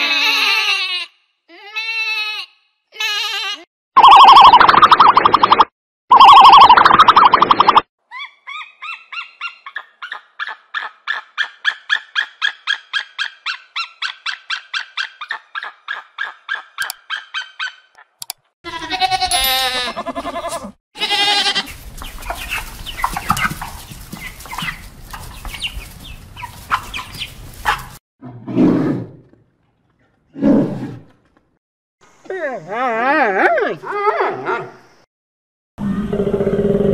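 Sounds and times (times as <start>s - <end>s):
rapid repeated pitched calls: 4.0s - 7.8s, 21.2s - 28.0s
goats bleating: 18.7s - 22.0s
goat herd moving: 18.8s - 28.0s.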